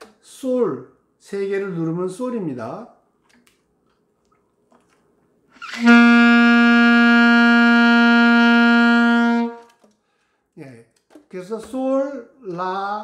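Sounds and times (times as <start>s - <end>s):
saxophone long steady note: 5.6s - 9.7s.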